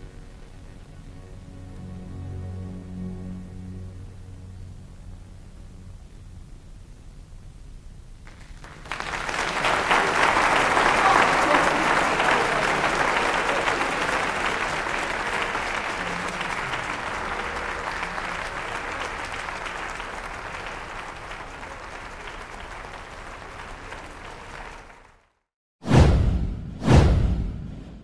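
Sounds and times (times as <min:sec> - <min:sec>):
audience applauding: 0:08.2 - 0:25.4.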